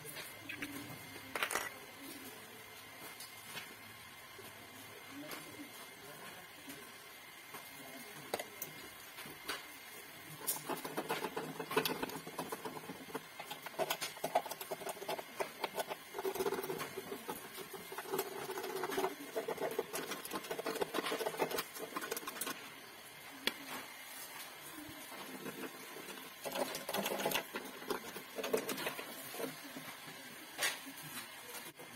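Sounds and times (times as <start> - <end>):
metal wire scraping gas burner: 10.4 - 22.7, 25.0 - 29.8.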